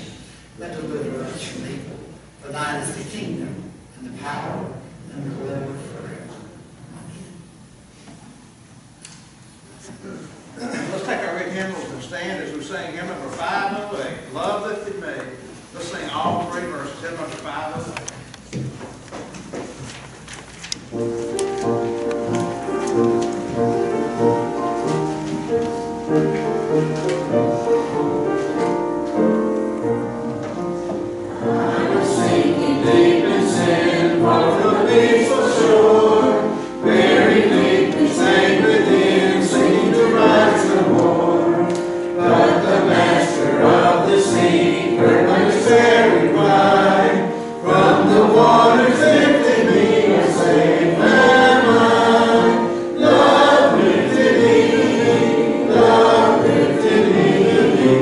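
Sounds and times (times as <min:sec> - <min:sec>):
instrumental accompaniment: 0:20.8 - 0:58.0
congregation singing a hymn: 0:20.9 - 0:58.0.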